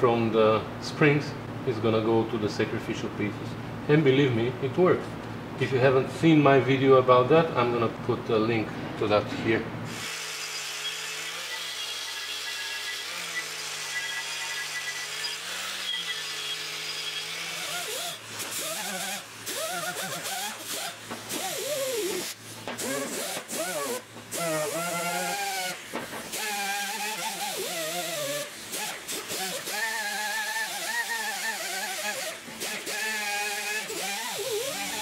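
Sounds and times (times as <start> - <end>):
die grinder whining: 9.9 - 35.0.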